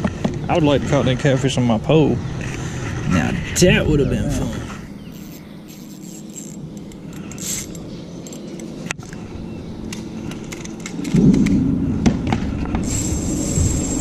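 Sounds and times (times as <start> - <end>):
low rumble: 2.2 - 5.1, 9.4 - 14.0
fishing reel clicks and rattles: 5.1 - 8.8, 12.8 - 14.0.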